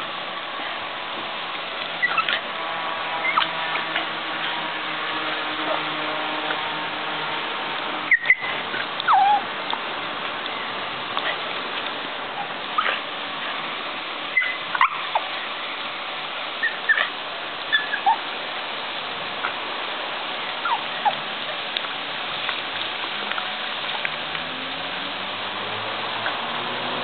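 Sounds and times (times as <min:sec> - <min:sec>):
dog yelping and whining: 0:02.0 - 0:02.4, 0:08.1 - 0:09.5, 0:12.4 - 0:13.0, 0:14.3 - 0:15.3, 0:16.6 - 0:18.3, 0:20.6 - 0:21.6.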